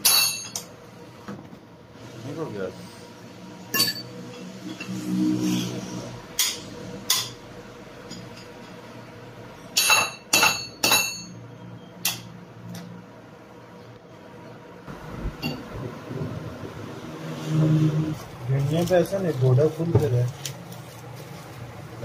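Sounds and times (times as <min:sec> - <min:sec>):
metal tools striking metal: 0:00.0 - 0:00.7, 0:03.7 - 0:05.0, 0:09.7 - 0:11.4.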